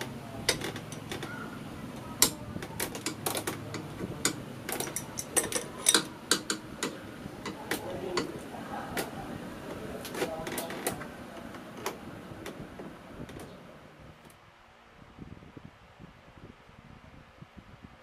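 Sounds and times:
wrench metallic clicks: 2.2 - 8.3.

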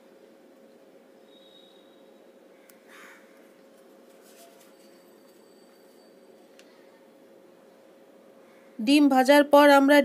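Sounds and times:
faint room hiss with hum: 0.0 - 10.0
soft rustle: 3.7 - 6.1.

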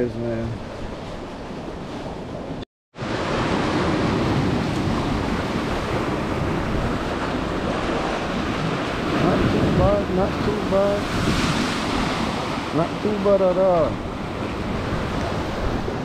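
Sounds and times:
wind gusting across microphone: 0.0 - 16.0
waves breaking: 0.1 - 16.0.

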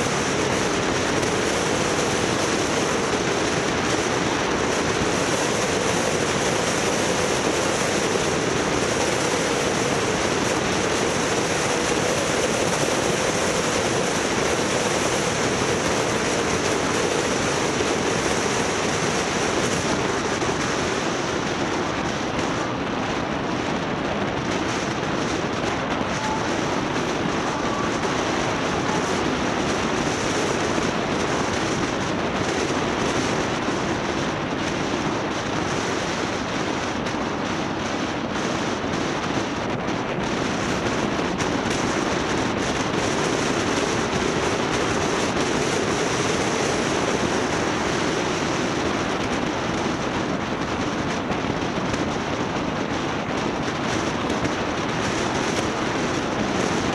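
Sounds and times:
vehicle road and wind noise: 0.0 - 56.9.

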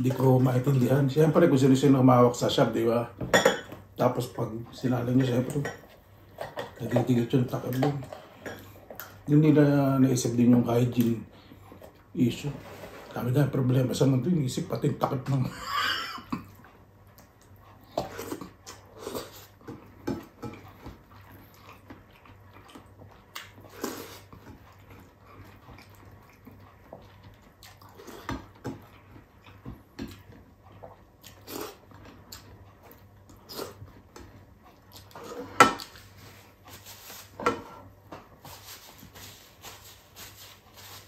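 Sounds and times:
person chewing: 16.3 - 37.3.

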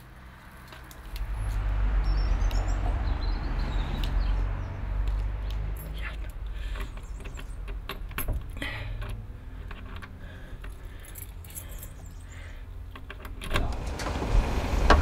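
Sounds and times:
keys jangling in lock: 5.7 - 12.4.

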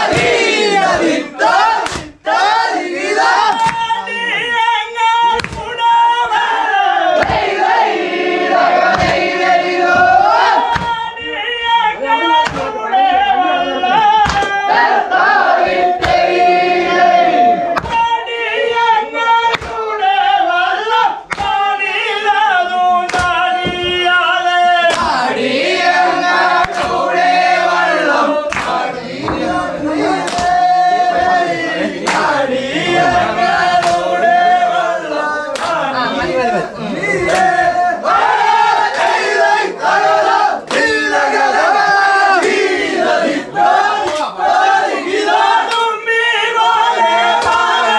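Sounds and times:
sharp rhythmic beat: 0.0 - 4.4, 7.1 - 11.5, 21.2 - 45.9
group of men singing: 0.0 - 47.9.

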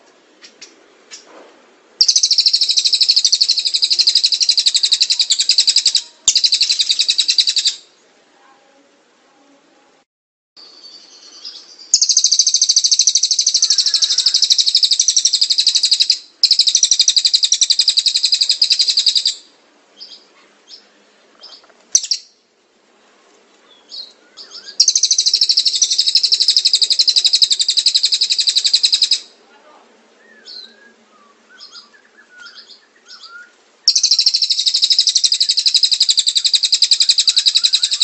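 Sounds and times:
songbird trilling: 2.0 - 7.9, 10.6 - 22.4, 23.8 - 29.4, 30.2 - 30.8, 31.5 - 38.0.

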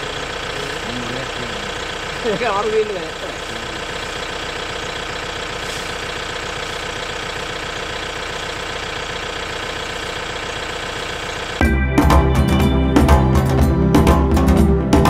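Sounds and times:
vehicle engine idling: 0.0 - 11.6
music: 11.6 - 15.0.

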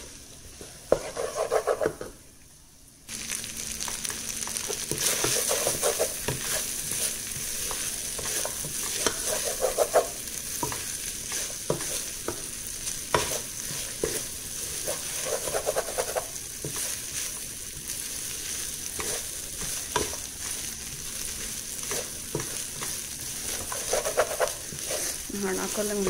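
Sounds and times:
rice sizzling in a wok: 0.0 - 26.0
spatula stirring and scraping: 0.5 - 2.1, 3.8 - 26.0.

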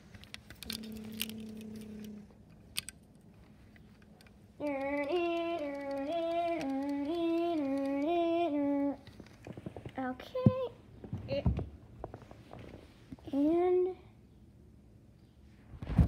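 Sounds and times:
toys clicking: 0.1 - 10.1
person humming: 0.6 - 2.4, 4.6 - 9.1
child singing wordless tune: 4.6 - 9.1, 10.0 - 11.5, 13.2 - 14.2.

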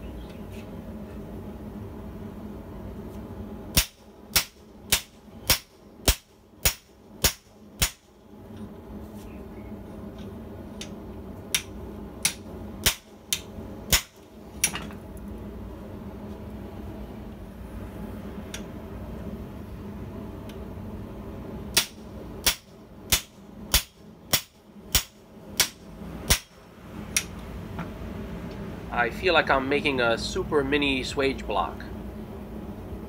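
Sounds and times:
low hum: 0.0 - 33.0
hammer striking steel: 21.7 - 26.6.

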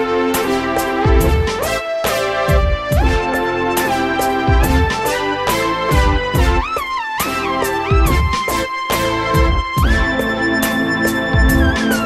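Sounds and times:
sliding lead melody: 0.0 - 12.0
kick drum beat: 1.1 - 1.6, 2.5 - 3.4, 4.5 - 5.1, 5.9 - 6.7, 7.9 - 8.4, 9.4 - 10.2, 11.4 - 11.9.

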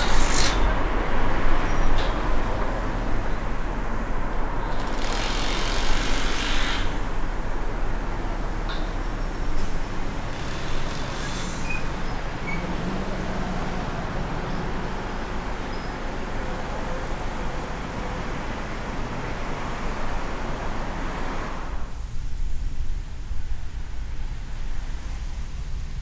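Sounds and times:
passing vehicles: 0.0 - 26.0
tyre and engine rumble: 0.0 - 26.0
short hiss: 10.5 - 12.0.

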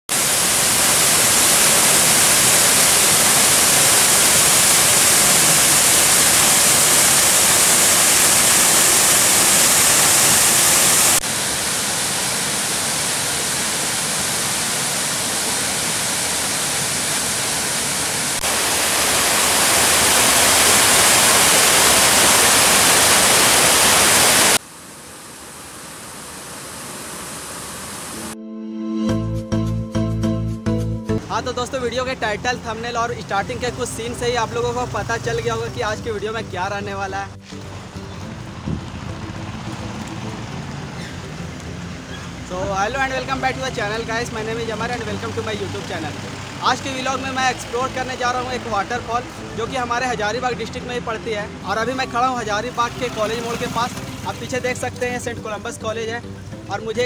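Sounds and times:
waterfall splashing over rock: 0.1 - 28.4, 42.8 - 50.6, 51.8 - 55.2.

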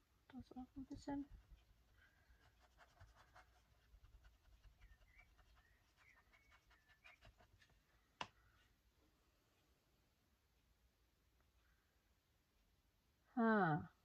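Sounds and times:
paintbrush strokes on paper: 0.4 - 8.0.

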